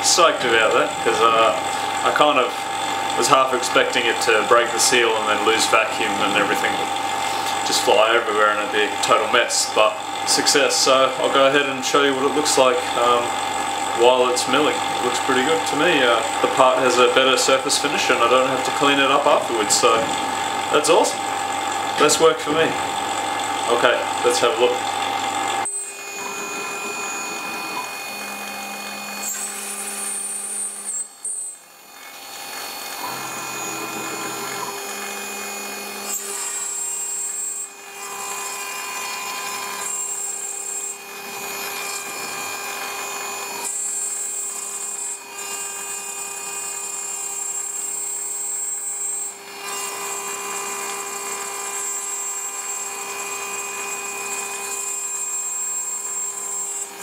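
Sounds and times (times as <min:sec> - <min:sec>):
machine moving low tones: 0:00.0 - 0:36.8
router spindle whine: 0:00.0 - 0:57.0.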